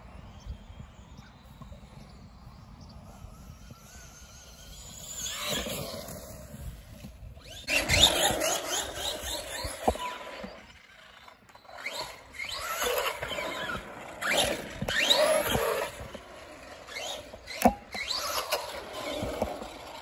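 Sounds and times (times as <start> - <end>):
electric motor whine: 1.5 - 20.0
tyre noise on asphalt: 3.7 - 20.0.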